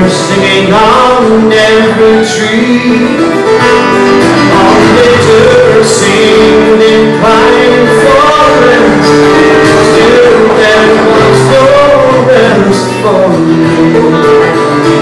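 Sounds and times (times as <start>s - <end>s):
fiddle: 0.0s - 15.0s
guitars: 0.0s - 15.0s
keyboard: 0.0s - 15.0s.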